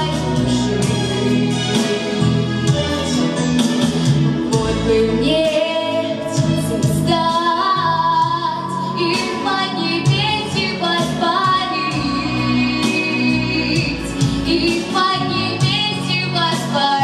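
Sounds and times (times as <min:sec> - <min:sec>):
instrumental backing music: 0:00.0 - 0:17.0
girl singing through microphone: 0:04.6 - 0:17.0.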